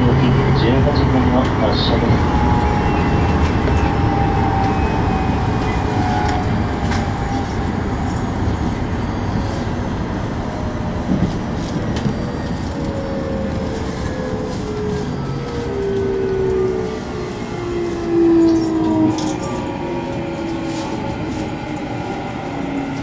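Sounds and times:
train wheels rumbling on track: 0.0s - 23.0s.

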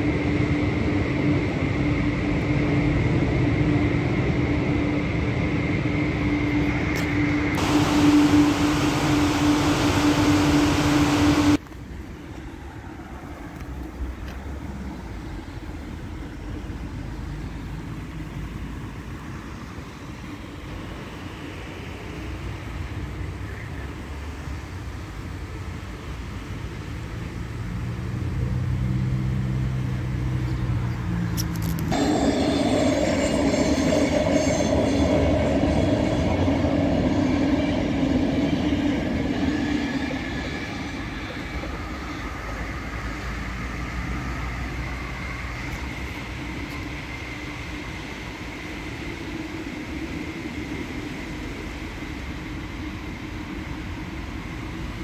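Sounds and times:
mechanical drone: 0.7s - 11.6s, 31.6s - 51.2s
low machine hum: 6.7s - 11.6s
water jets spraying: 7.6s - 12.4s.

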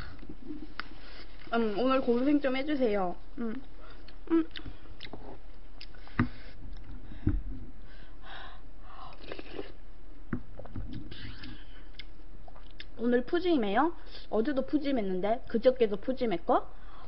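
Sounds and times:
chewing: 3.9s - 7.0s
slurping from spoon: 9.1s - 9.8s.

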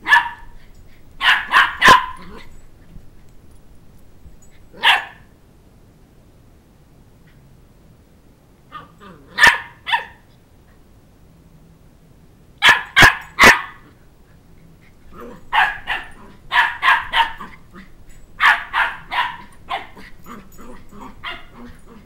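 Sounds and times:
puppy barking: 0.0s - 0.6s, 1.2s - 2.5s, 4.8s - 5.3s, 8.7s - 10.2s, 12.6s - 13.9s, 15.2s - 17.7s, 18.4s - 22.0s.

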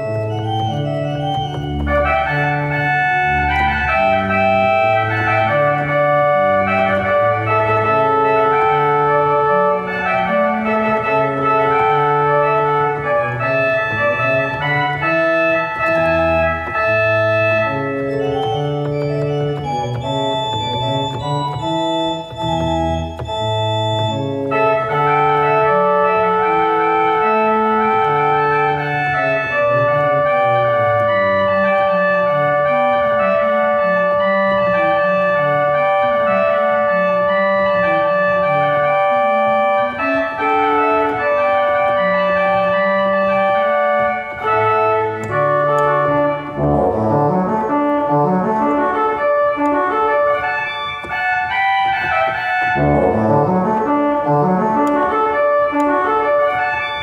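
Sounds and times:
organ music: 0.0s - 57.0s.

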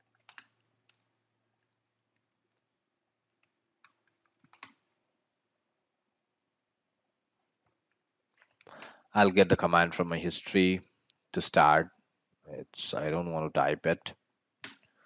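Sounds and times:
keyboard keystrokes: 0.0s - 1.0s, 3.8s - 4.8s.

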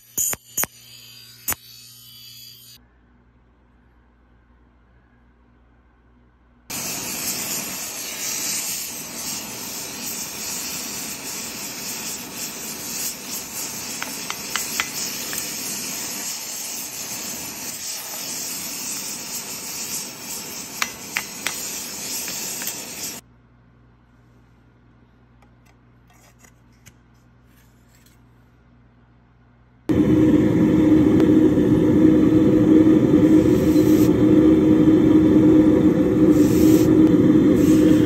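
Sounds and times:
gas torch flame hissing: 6.7s - 23.2s, 33.1s - 34.5s, 35.6s - 38.0s.

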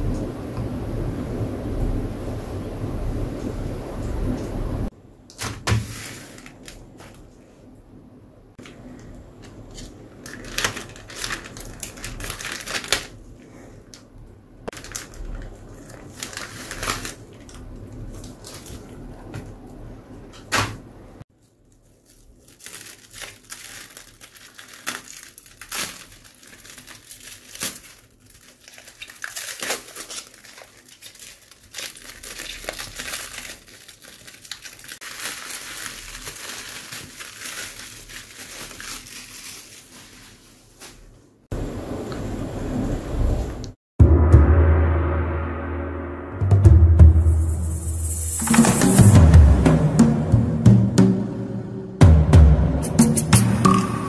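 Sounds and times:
plastic packaging crinkling and tearing: 5.3s - 7.4s, 8.8s - 14.1s, 14.7s - 19.4s, 21.4s - 41.1s
scissors cutting plastic: 9.4s - 13.2s, 21.7s - 34.9s.

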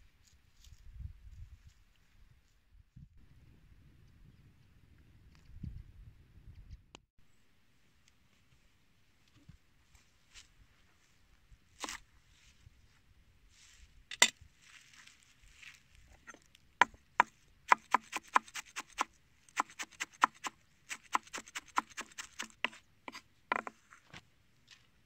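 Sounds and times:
knife tapping on wooden board: 23.5s - 23.7s.

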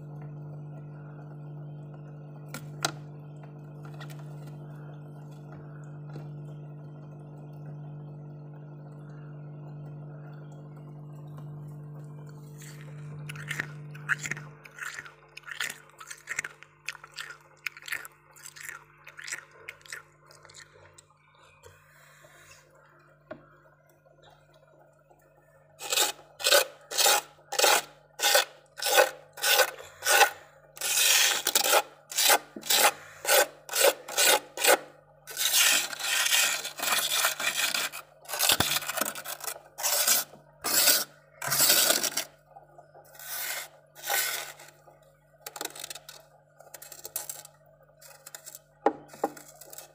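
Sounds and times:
fingers scraping frost: 43.1s - 44.8s.

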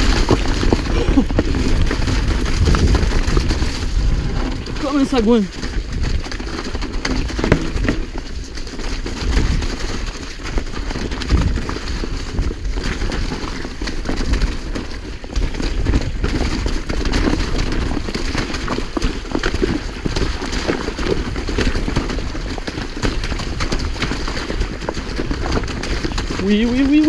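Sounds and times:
bike knocks and rattles: 0.0s - 27.0s
mountain bike rumbling on rocky trail: 0.0s - 27.0s.

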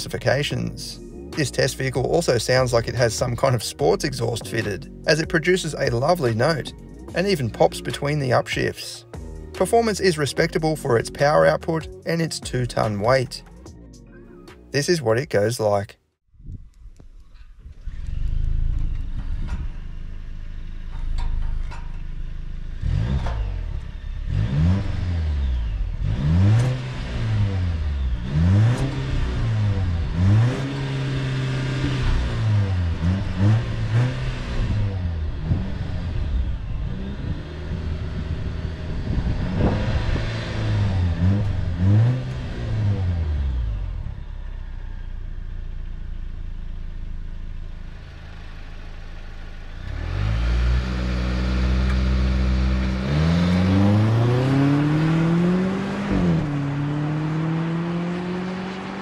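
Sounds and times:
car engine accelerating hard: 17.6s - 59.0s.

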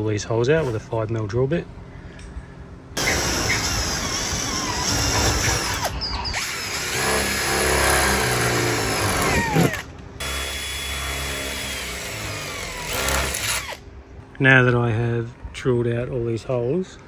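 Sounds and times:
power drill drilling metal: 3.0s - 13.8s.

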